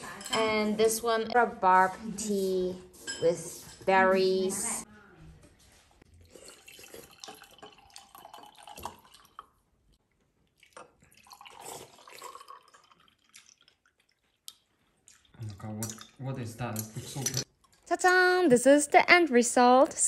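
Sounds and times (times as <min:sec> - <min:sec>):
tea trickling into glass: 0:06.3 - 0:09.6, 0:10.6 - 0:14.2.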